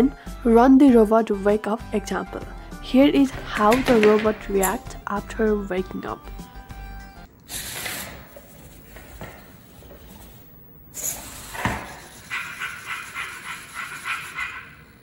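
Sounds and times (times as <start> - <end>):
rhythmic dog panting: 11.8 - 14.9.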